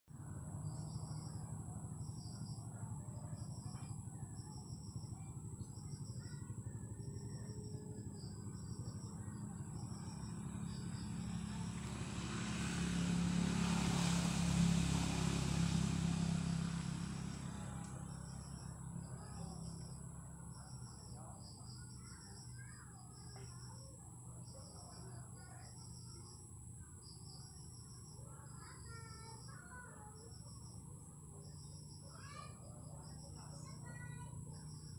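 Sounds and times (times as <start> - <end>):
steady low hum: 0.1 - 34.9
small bird chirping: 0.2 - 13.1, 16.2 - 34.9
vehicle passing: 4.8 - 22.4.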